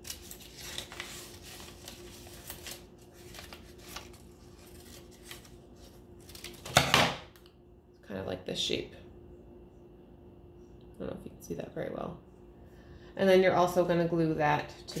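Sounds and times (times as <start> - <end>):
paper rustling: 0.0 - 6.9.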